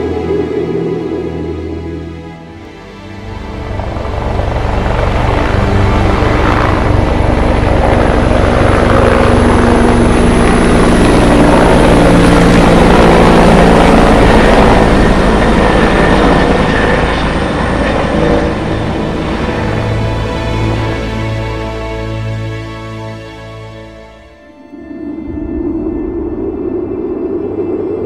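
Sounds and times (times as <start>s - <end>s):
turboshaft engine whine: 0.0s - 28.0s
helicopter rotor beating: 3.2s - 21.2s.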